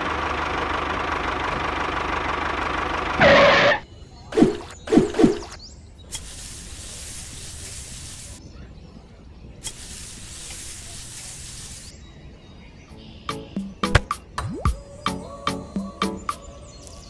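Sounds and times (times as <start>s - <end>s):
music: 12.9s - 17.0s.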